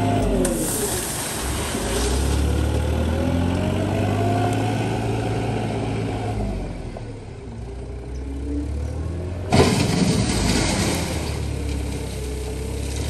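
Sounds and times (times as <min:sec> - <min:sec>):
wheel loader engine running: 0:00.0 - 0:13.0
bucket crunching into gravel: 0:09.5 - 0:12.0.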